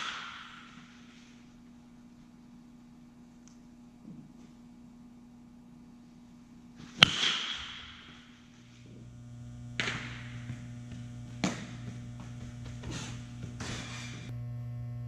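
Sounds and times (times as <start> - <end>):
metal bat hitting ball: 0.0 - 1.0, 6.8 - 8.5, 9.8 - 10.5
steady electrical hum: 0.0 - 15.0.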